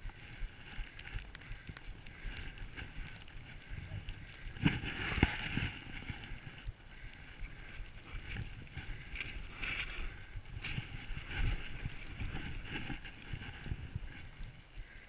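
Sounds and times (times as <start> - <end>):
wind rumble on microphone: 0.0 - 15.0
skis hissing through snow: 4.6 - 6.2.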